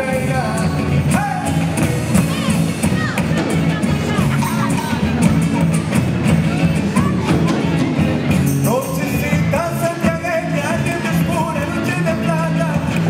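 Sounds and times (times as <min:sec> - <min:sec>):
person singing: 0:00.0 - 0:05.2, 0:08.6 - 0:13.0
drums: 0:00.0 - 0:13.0
electric guitars: 0:00.0 - 0:13.0.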